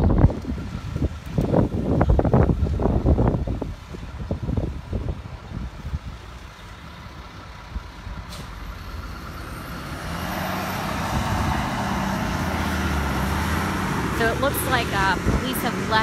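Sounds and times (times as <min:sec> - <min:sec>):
heavy vehicle engine droning: 0:00.0 - 0:16.0.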